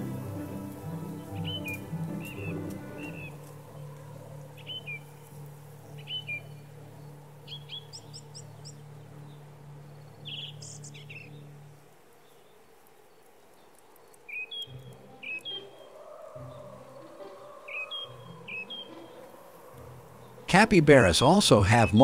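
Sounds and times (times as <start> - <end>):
held low music chord: 0.0 - 12.4
small birds chirping: 0.0 - 22.0.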